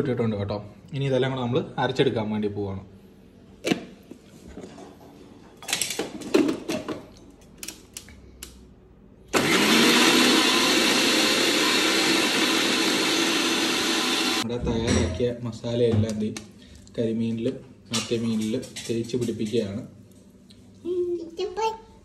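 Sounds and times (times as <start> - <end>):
mixer grinder running: 9.3 - 14.4.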